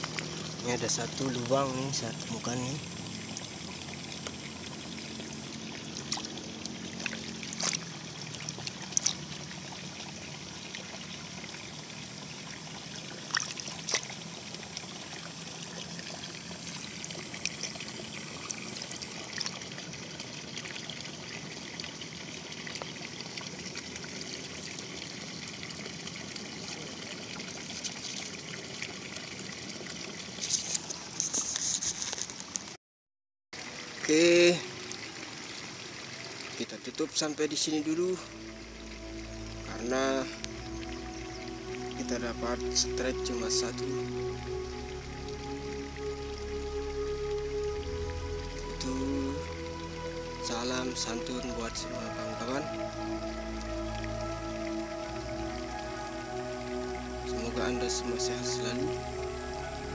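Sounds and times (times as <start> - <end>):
faint high whine: 0.0 - 8.1, 14.2 - 19.7, 37.2 - 59.9
water trickling in ditch: 0.0 - 32.8, 33.6 - 59.9.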